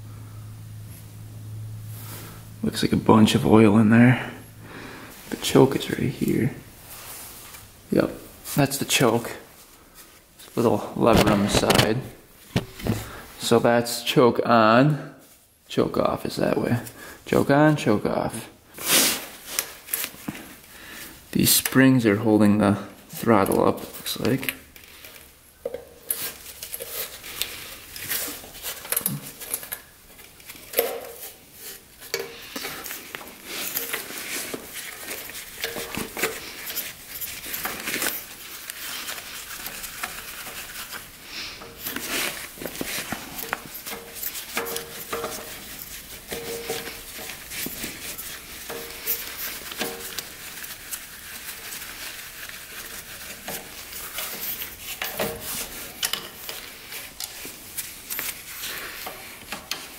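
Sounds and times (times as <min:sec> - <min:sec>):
metal hand tools clicking and scraping: 0:23.5 - 0:59.9.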